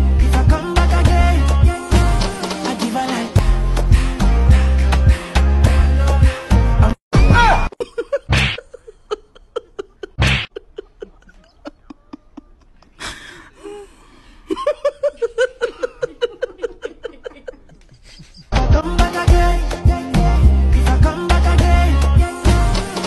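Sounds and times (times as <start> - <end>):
person laughing: 7.5 - 13.9, 14.5 - 18.6.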